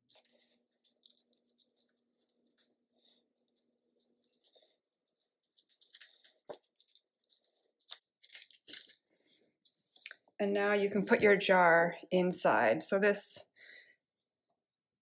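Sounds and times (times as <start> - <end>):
cord rustling against wooden ring: 0.0 - 10.2
tape crinkling and scratching: 0.0 - 10.3.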